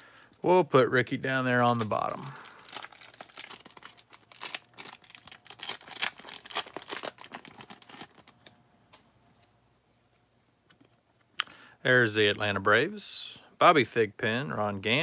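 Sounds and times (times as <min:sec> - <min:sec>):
foil wrapper crinkling and tearing: 0:01.6 - 0:08.5.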